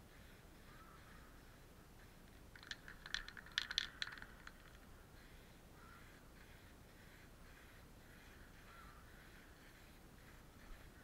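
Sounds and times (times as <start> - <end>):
sharp clicks and rattles: 2.3 - 4.9.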